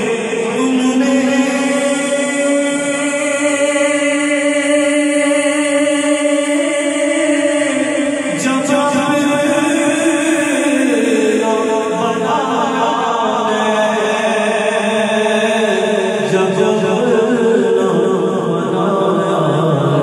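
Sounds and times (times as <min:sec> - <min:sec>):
man singing unaccompanied: 0:00.0 - 0:20.0.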